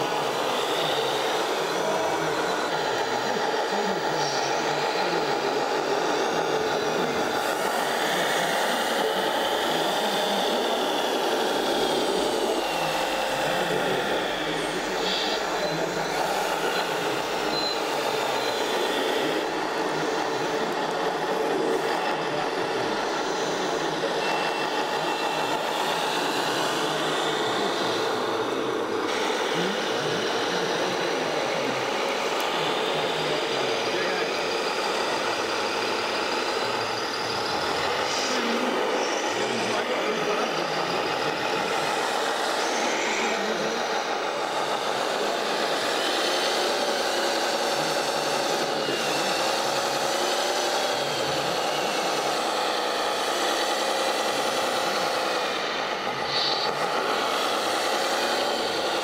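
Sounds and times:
faint motor whine: 0.0 - 59.0
model vehicles mechanical noise: 0.0 - 59.0.

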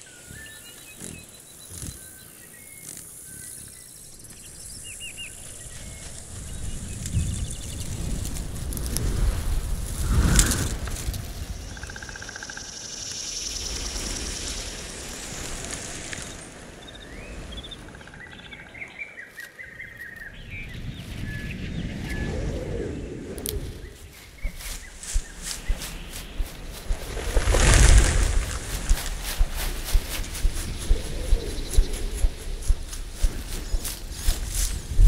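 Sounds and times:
bird chirps: 0.0 - 8.0, 23.8 - 35.0
deep whooshing: 21.5 - 35.0
rustling: 23.5 - 35.0.

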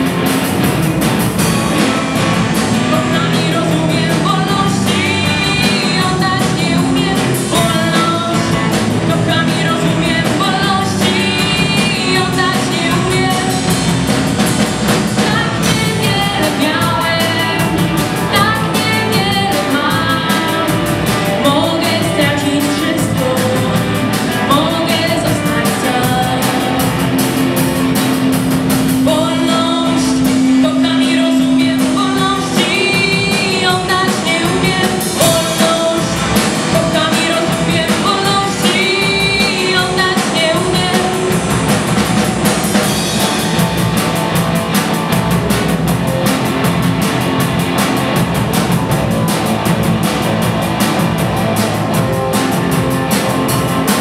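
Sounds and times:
bass guitar: 0.0 - 54.0
drum kit with cymbals: 0.0 - 54.0
electric guitar: 0.0 - 54.0
woman singing: 1.8 - 14.0, 15.2 - 27.4, 28.9 - 43.1.

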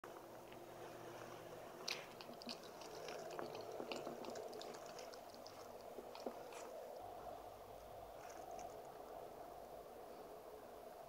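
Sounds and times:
puppy chewing wet smacks: 1.8 - 7.1.

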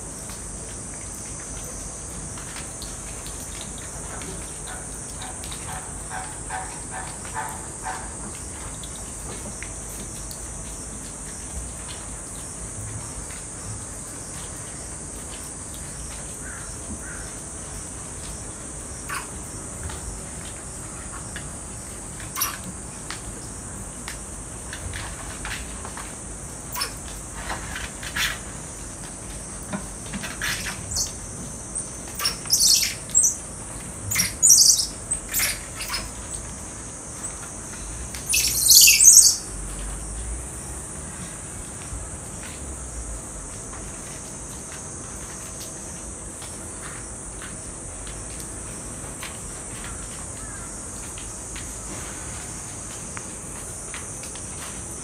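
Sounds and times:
steady high hiss: 0.0 - 55.0
monkeys chirping: 19.1 - 19.3, 22.3 - 22.6, 26.7 - 27.0, 32.2 - 33.4, 34.1 - 36.1, 38.2 - 39.4.

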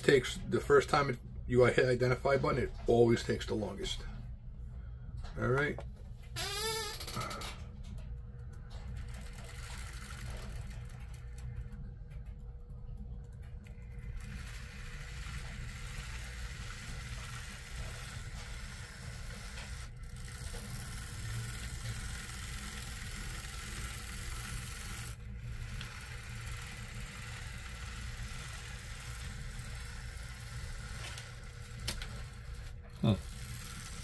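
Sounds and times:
model train motor hum: 8.4 - 11.8, 13.5 - 34.0.

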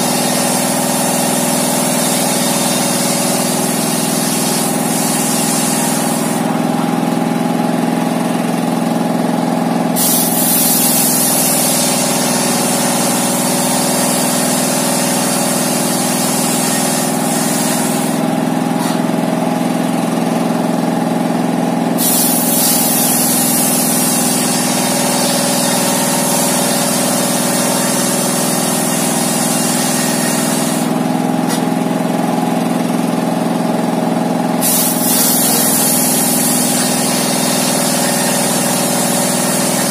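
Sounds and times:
circular saw blade cutting wood: 0.0 - 6.8, 10.0 - 19.2, 22.0 - 31.8, 34.6 - 39.9
diesel engine running: 0.0 - 39.9.

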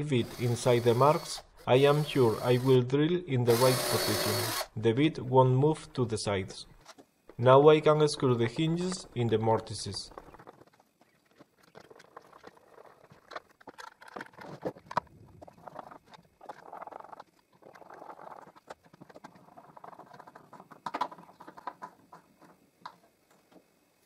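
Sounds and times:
screws scraping and creaking: 0.1 - 2.8, 3.5 - 4.7
small clicks and knocks: 15.7 - 23.7.

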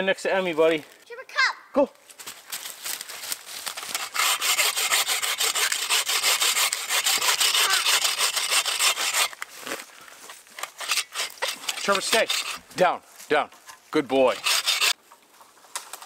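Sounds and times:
hand saw cutting wet wood: 3.8 - 9.4, 10.6 - 12.8, 14.1 - 15.0.

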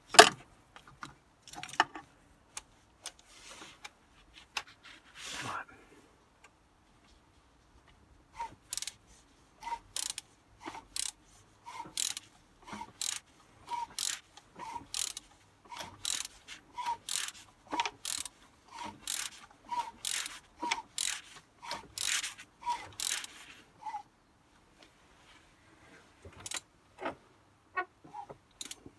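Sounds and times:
ratchet wrench clicking: 8.7 - 9.0, 9.9 - 10.3, 10.9 - 11.2, 11.9 - 12.3, 12.9 - 13.2, 13.8 - 14.3, 14.9 - 23.4, 26.4 - 26.6, 28.6 - 28.8.

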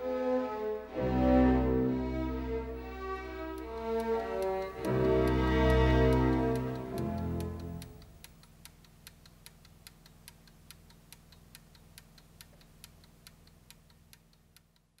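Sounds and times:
mechanical clock ticking: 3.5 - 15.0.

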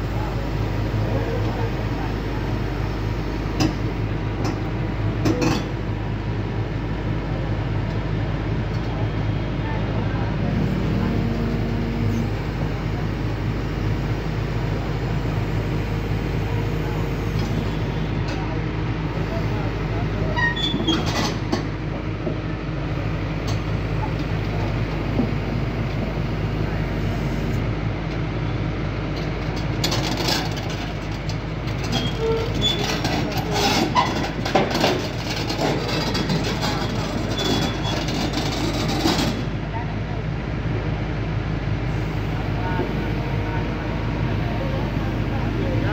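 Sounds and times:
excavator diesel engine rumbling: 0.0 - 45.9
metallic track clanks and squeaks: 20.3 - 21.5, 31.8 - 39.4.

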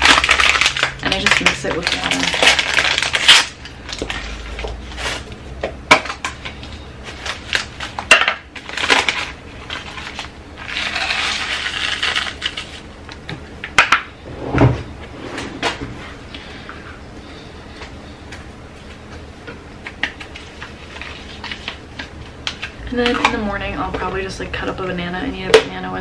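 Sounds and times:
paper packet crinkling: 0.0 - 5.3, 7.0 - 12.8, 20.1 - 21.8.

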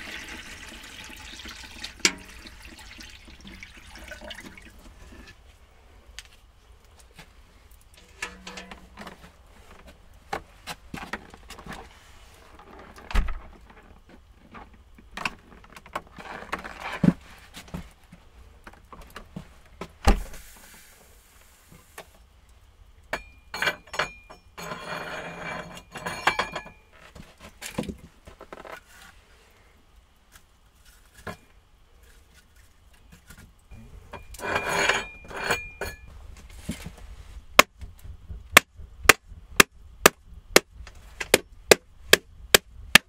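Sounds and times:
objects clicking and knocking: 7.9 - 9.3.

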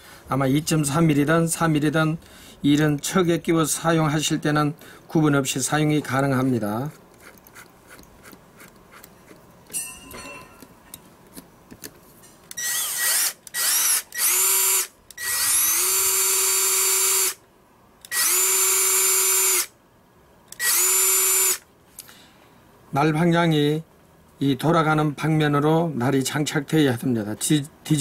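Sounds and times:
cordless drill whining: 12.5 - 17.4, 18.1 - 19.7, 20.6 - 21.6.

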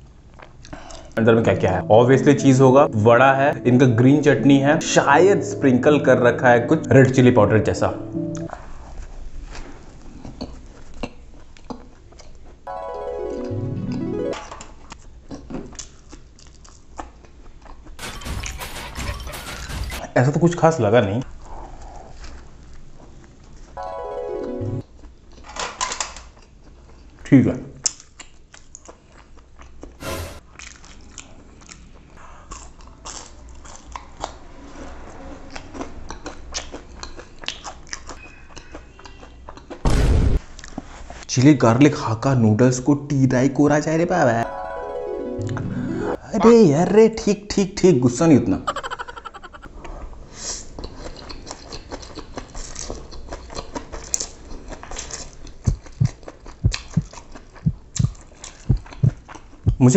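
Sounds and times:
person chewing food: 10.2 - 12.6, 14.9 - 18.0, 27.8 - 34.4, 35.5 - 39.8, 49.5 - 59.8.

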